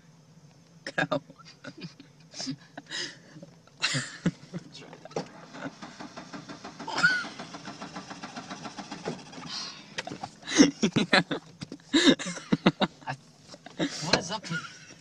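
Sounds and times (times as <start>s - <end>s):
engine pulsing: 1.5s - 15.0s
engine knocking: 5.2s - 10.4s.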